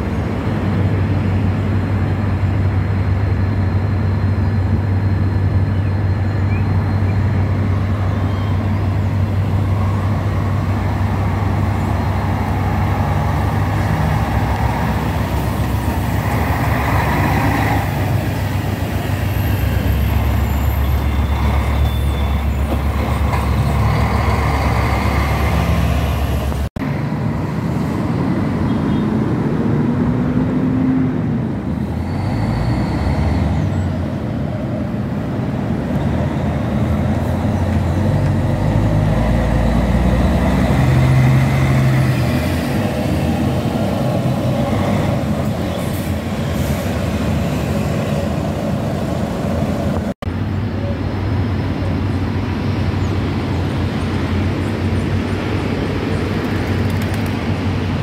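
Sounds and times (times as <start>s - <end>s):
bus diesel engines rumbling: 0.0s - 58.0s
bus engine revving up: 7.2s - 26.8s, 29.3s - 34.2s, 35.0s - 50.2s.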